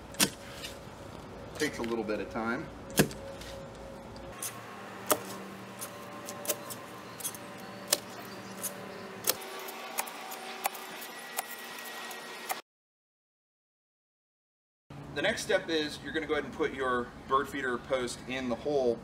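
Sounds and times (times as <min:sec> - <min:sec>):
post hole digger clinking: 0:04.3 - 0:09.5.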